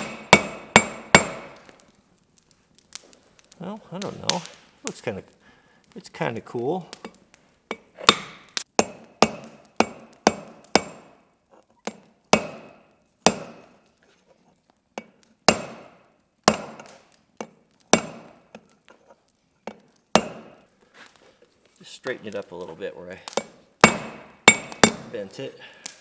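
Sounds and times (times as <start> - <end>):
hammer striking iron on anvil: 0.0 - 1.6, 7.7 - 11.2, 11.9 - 13.7, 15.0 - 18.4, 19.7 - 20.6, 23.3 - 25.1.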